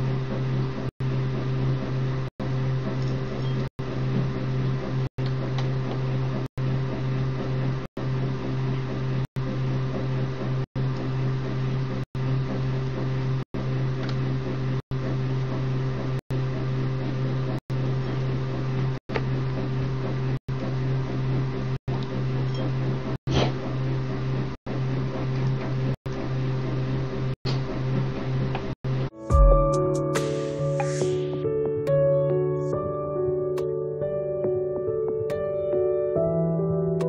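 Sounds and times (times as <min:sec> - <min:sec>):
appliance humming: 0:00.0 - 0:29.6.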